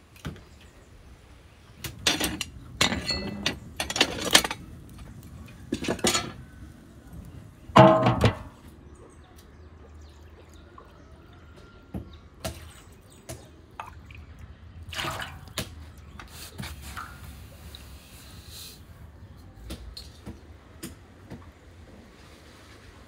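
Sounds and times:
water dripping into metal pan: 12.4 - 15.7.

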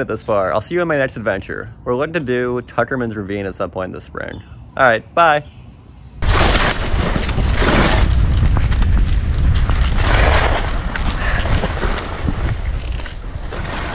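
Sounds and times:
wind rumbling on microphone: 6.2 - 13.9.

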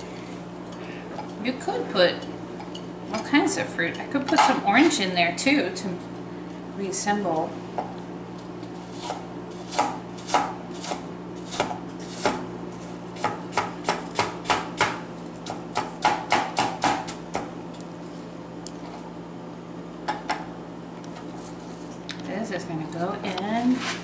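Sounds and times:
knife chopping on plastic board: 9.0 - 12.4, 13.2 - 17.5.

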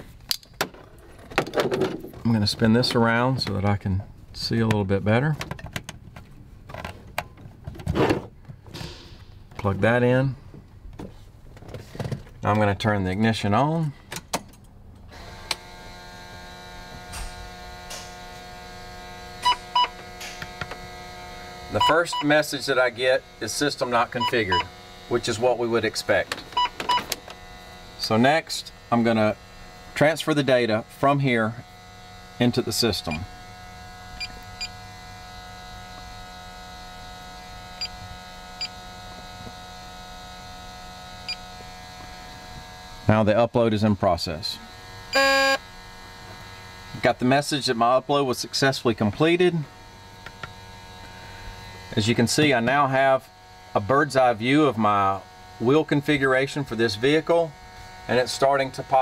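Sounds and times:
steady electric hum: 0.0 - 59.0
steady electrical buzz: 14.7 - 59.0
short beeps: 21.8 - 22.3, 24.2 - 24.7, 45.2 - 45.6.

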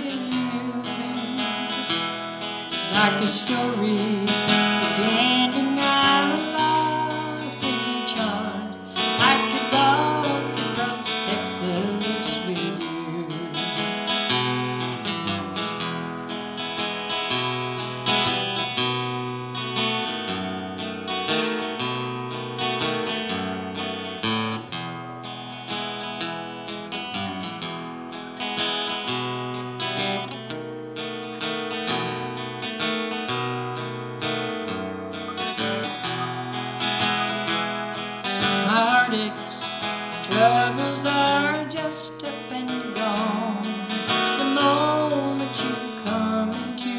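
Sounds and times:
person singing: 0.0 - 15.0, 34.4 - 46.9
strummed acoustic guitar: 0.0 - 46.9.

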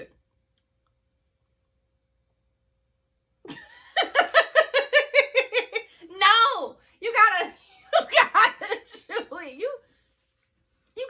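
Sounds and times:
woman laughing: 3.5 - 6.1, 7.3 - 9.5.

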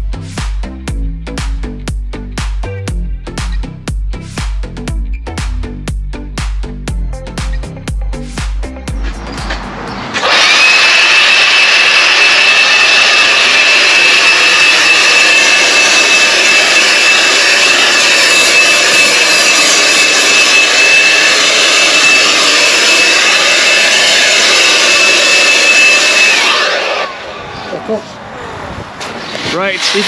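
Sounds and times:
cordless blower whining: 7.4 - 27.8.

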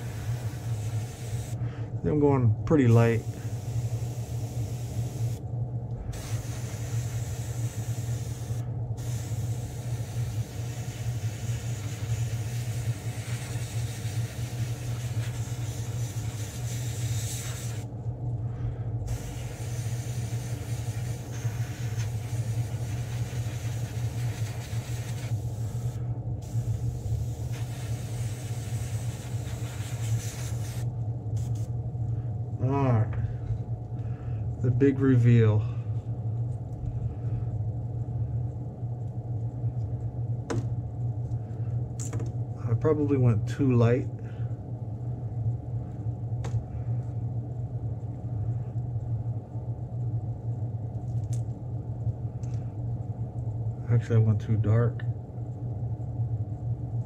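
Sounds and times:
airbrush hissing: 0.0 - 1.6, 3.1 - 5.4, 6.1 - 17.9, 19.1 - 31.7
low motor hum: 0.0 - 30.0.

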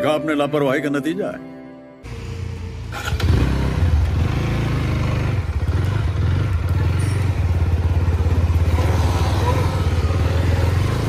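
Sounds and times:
motorcycle engine pulling away: 2.1 - 11.0.

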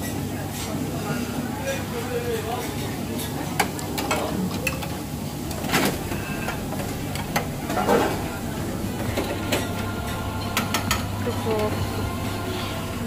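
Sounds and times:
murmur of voices: 0.0 - 13.0
utensils clinking on metal trays: 2.4 - 13.0
low hum: 5.6 - 13.0.

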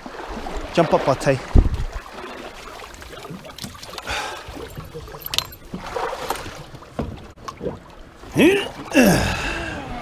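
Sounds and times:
water sloshing around boat: 0.0 - 10.0
knocks and scuffs on hull: 3.0 - 7.8.

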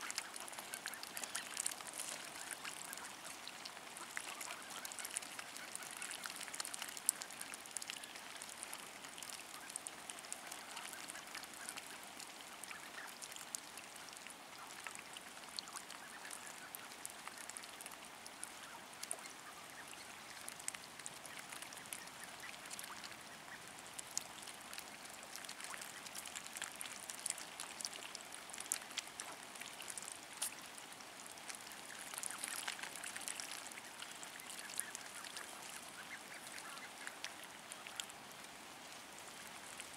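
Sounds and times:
ducks quacking: 0.0 - 8.2, 9.5 - 13.2, 31.7 - 38.1
ducks dabbling in mud: 0.0 - 39.9.

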